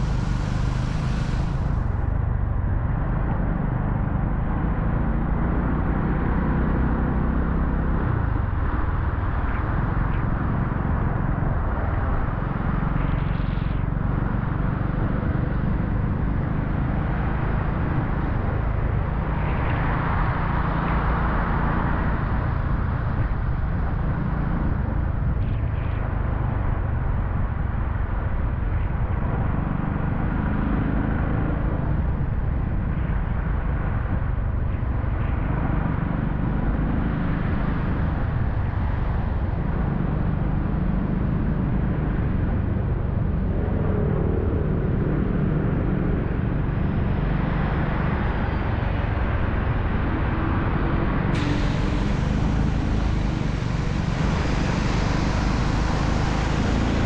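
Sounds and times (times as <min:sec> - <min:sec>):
hiss: 0:00.0 - 0:02.1, 0:51.3 - 0:57.0
car engine and road noise: 0:00.0 - 0:57.0.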